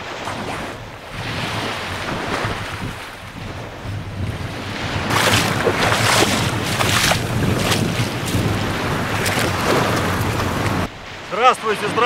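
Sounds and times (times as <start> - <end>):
wind buffeting microphone: 0.0 - 11.2
small waves washing on shore: 0.0 - 12.0
person wading and splashing: 4.2 - 10.9.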